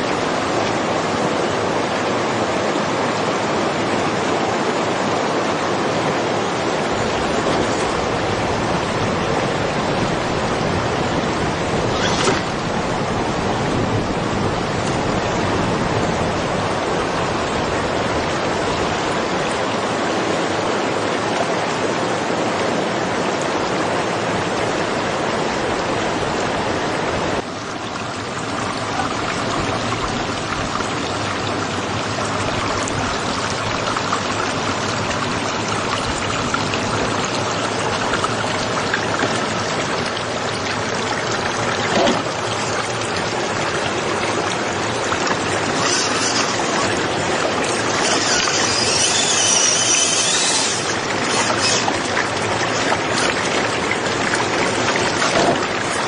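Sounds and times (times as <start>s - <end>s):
water rushing over rocks: 0.0s - 56.0s
splash or knock: 55.1s - 55.7s.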